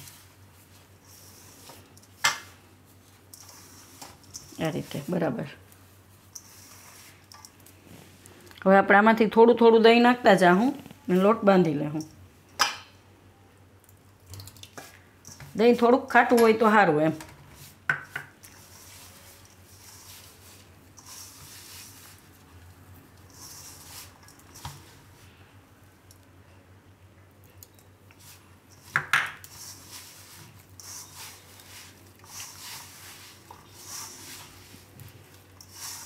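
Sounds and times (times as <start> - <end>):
dough rustling and squishing: 0.0 - 8.5, 17.5 - 25.5, 28.1 - 36.0.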